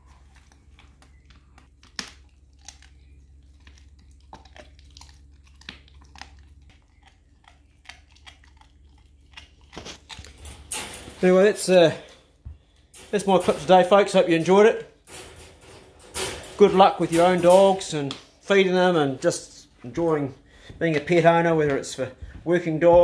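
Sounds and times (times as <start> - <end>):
dog chewing and crunching: 0.0 - 10.4
low hum: 0.0 - 20.7.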